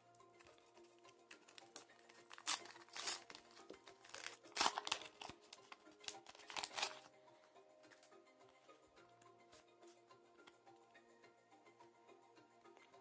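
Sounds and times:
soft background music: 0.0s - 13.0s
wrapper tearing and crinkling: 1.4s - 5.4s, 6.0s - 7.1s.

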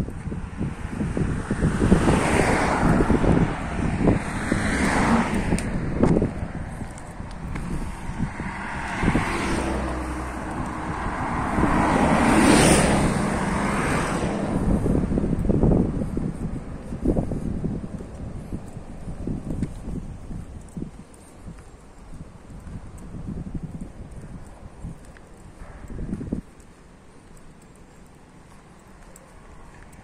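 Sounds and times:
car passing: 0.0s - 21.4s
wind buffeting microphone: 0.0s - 30.0s.

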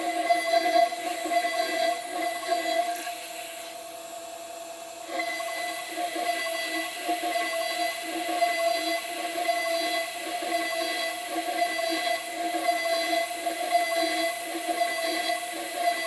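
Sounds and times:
end mill cutting aluminium: 0.0s - 4.0s
router spindle whining: 0.0s - 16.0s.

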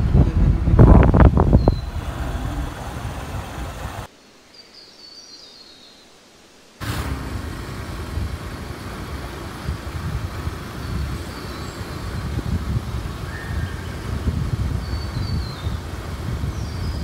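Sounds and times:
wind buffeting microphone: 0.0s - 4.1s, 6.8s - 17.0s
faint bird chirps: 1.5s - 2.0s, 4.4s - 6.5s, 13.2s - 14.2s.

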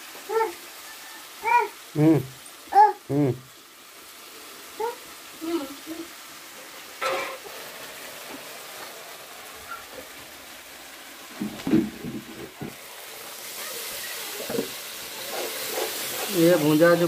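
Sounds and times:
spices sizzling in a pan: 0.0s - 17.0s
steel utensil scraping a pan: 7.0s - 7.5s.

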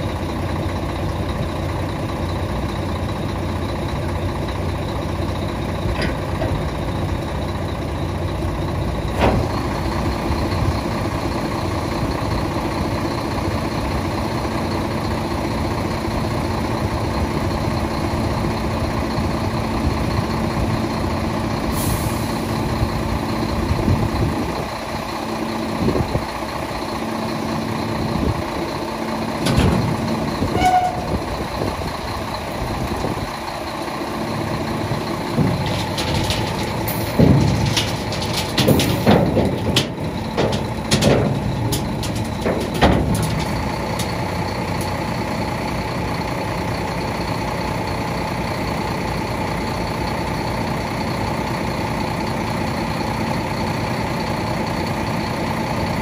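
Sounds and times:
truck diesel engine running: 0.0s - 56.0s
metallic clanks: 34.9s - 45.0s.

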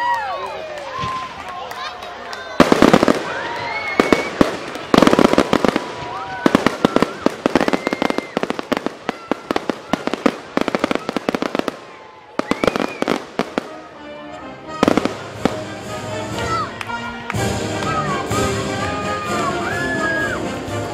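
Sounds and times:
fireworks crackling bangs: 0.8s - 1.9s, 2.5s - 13.9s, 14.7s - 16.6s.

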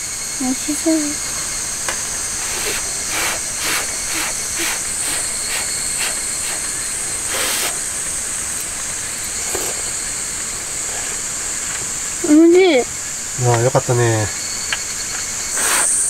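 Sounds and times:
steady high hiss: 0.0s - 16.0s
child slurping noodles: 2.4s - 8.0s.

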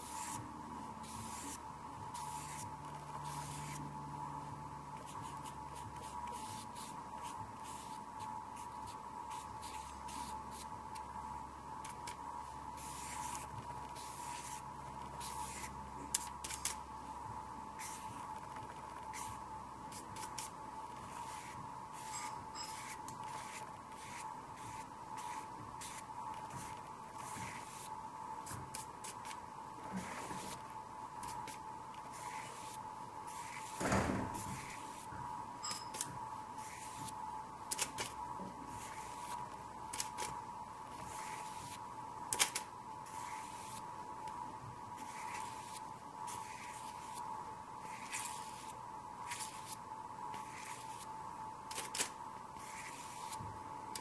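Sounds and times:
paintbrush scratchy swishes: 0.0s - 0.4s, 1.0s - 3.9s, 12.8s - 16.2s, 19.1s - 29.2s, 29.9s - 30.6s, 31.3s - 35.1s, 36.6s - 37.2s, 38.7s - 39.4s, 43.1s - 43.8s, 45.0s - 47.2s, 47.8s - 49.8s, 52.6s - 53.4s.

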